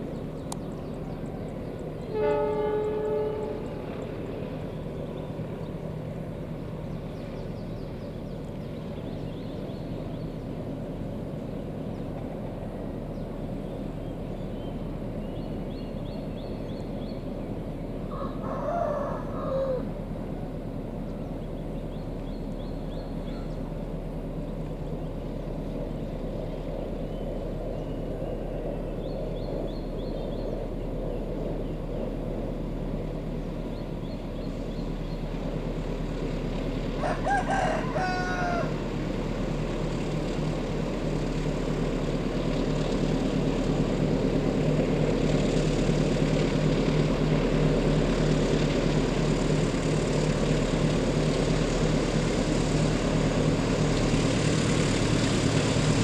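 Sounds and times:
locomotive engine humming: 0:00.0 - 0:56.0
rooster crowing: 0:18.1 - 0:20.0, 0:37.0 - 0:38.8.

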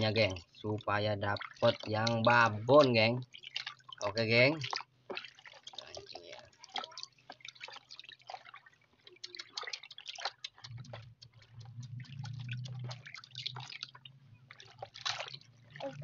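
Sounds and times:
water dripping and plopping: 0:00.0 - 0:16.0
low steady hum: 0:10.5 - 0:16.0.

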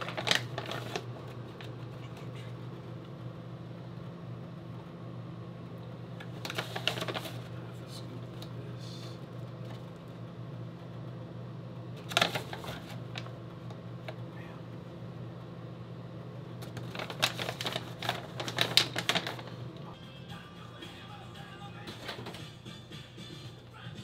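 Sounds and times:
plastic pouch crinkling: 0:00.0 - 0:01.1, 0:06.2 - 0:07.4, 0:12.0 - 0:13.3, 0:16.6 - 0:19.6
steady low hum: 0:00.0 - 0:24.0.

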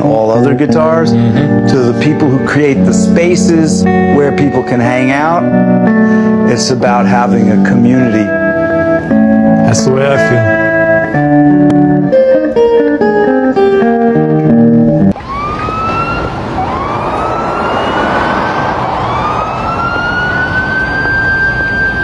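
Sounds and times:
guitar music: 0:00.0 - 0:15.4
siren wailing: 0:15.0 - 0:22.0.

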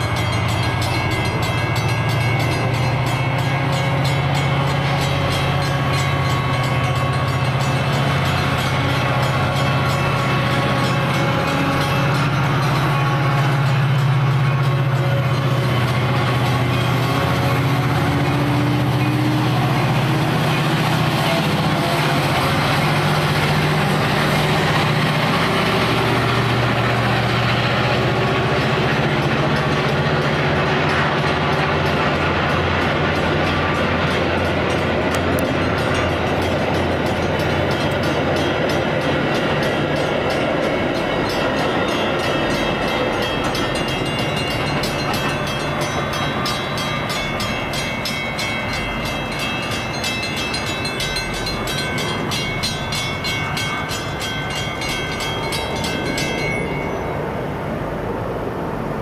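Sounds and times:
diesel locomotive engine drone: 0:00.0 - 0:59.0
rumble of rail cars: 0:00.0 - 0:59.0
wheels clicking over rail joints: 0:26.4 - 0:57.0.

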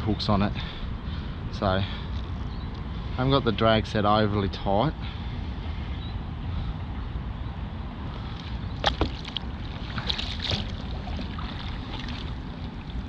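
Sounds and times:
wind rumbling on microphone: 0:00.0 - 0:13.0
water against kayak hull: 0:08.2 - 0:13.0.

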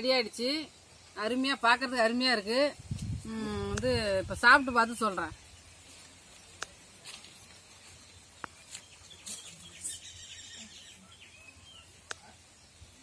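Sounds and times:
soft bird chirps: 0:04.5 - 0:13.0.

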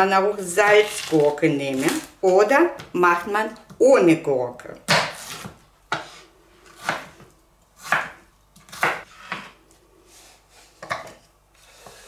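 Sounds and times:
knife slicing cucumber: 0:07.8 - 0:09.5.

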